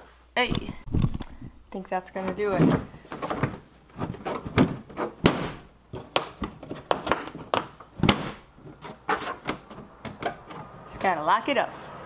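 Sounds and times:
plastic lid thunks and clicks: 0:04.3 - 0:08.4.

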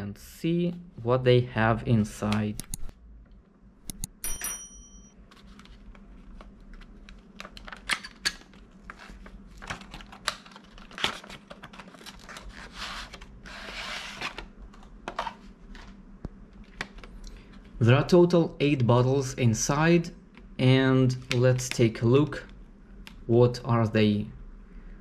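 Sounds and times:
cardboard and plastic clicks and scrapes: 0:05.3 - 0:15.9.

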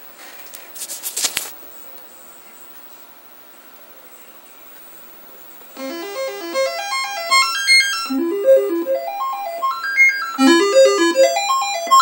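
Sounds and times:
short bleeping notes climbing: 0:05.8 - 0:12.0.

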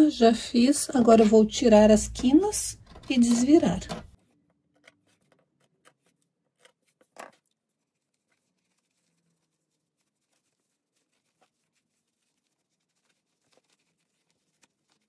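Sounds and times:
fabric handling: 0:04.9 - 0:15.0.

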